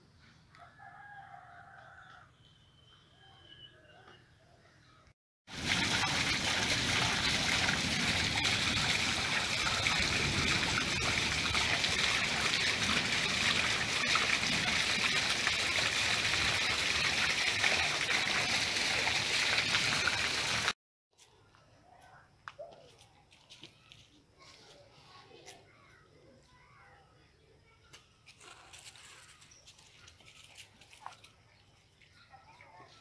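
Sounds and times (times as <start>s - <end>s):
running water rushing: 5.5s - 20.8s.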